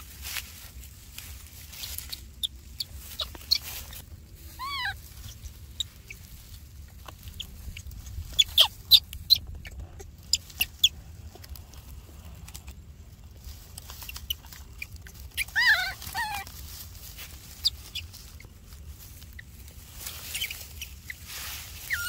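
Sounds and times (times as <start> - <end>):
baby monkey cry: 2.4 - 6.3, 7.3 - 10.9, 14.1 - 16.6, 20.2 - 21.0, 21.8 - 22.0
sharp clicks and squeaks: 4.6 - 11.6, 13.5 - 16.5.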